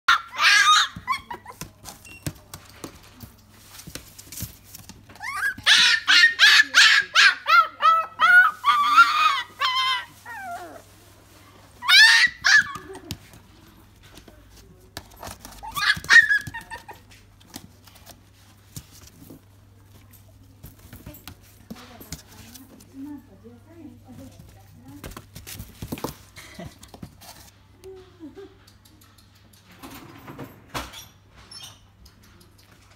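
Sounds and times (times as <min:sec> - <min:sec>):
puppy whining: 0:00.1 - 0:01.8, 0:05.1 - 0:11.0, 0:11.8 - 0:13.1, 0:15.5 - 0:17.2.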